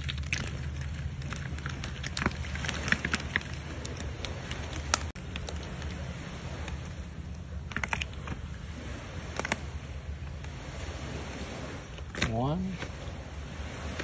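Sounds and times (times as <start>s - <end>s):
sharp clicks and crackles: 0.0s - 6.0s, 7.7s - 8.4s
low motor hum: 0.0s - 14.0s.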